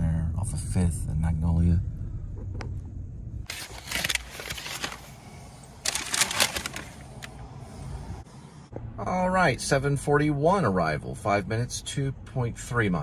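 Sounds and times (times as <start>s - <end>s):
rustling handling noise: 3.5s - 7.4s.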